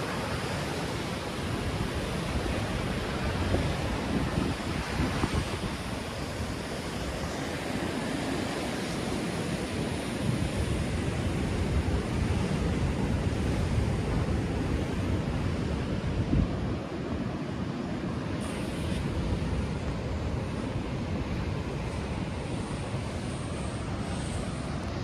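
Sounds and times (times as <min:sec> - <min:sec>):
wind buffeting microphone: 0:01.2 - 0:17.7.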